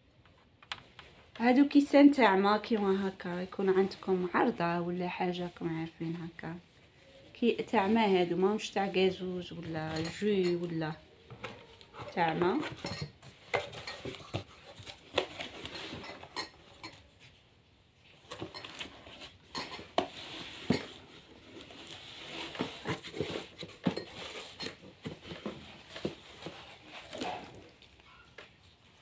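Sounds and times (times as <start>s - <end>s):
cardboard scraping: 18.2s - 27.9s.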